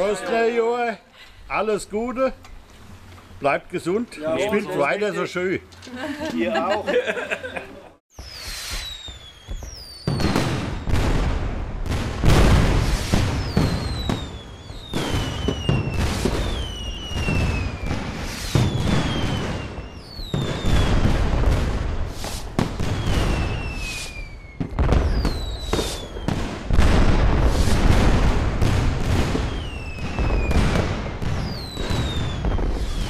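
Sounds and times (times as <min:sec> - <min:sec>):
fireworks bangs and crackling: 0:08.1 - 0:33.0
whistling rockets: 0:08.1 - 0:33.0.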